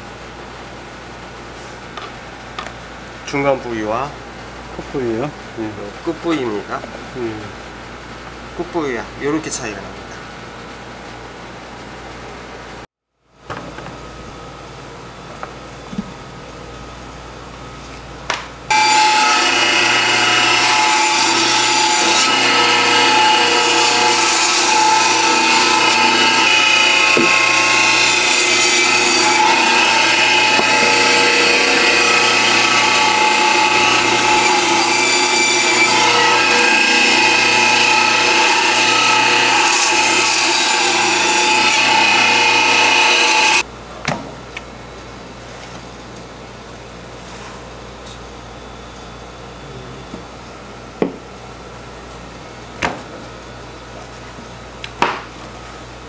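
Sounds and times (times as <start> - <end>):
meat-cutting machine whining: 18.7 - 43.7.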